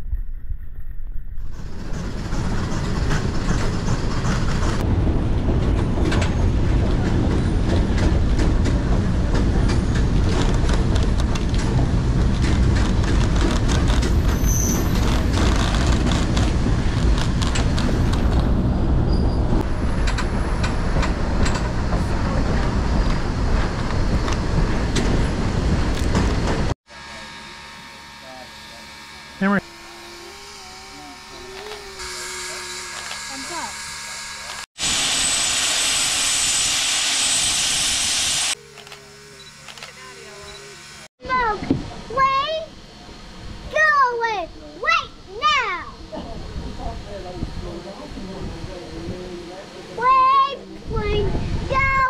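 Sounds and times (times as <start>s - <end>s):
train rumbling on track: 1.5s - 26.8s.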